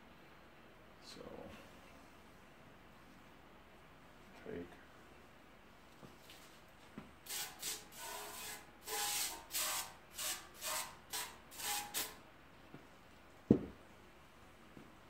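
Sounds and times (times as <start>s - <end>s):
aerosol spray hissing bursts: 7.3s - 12.2s.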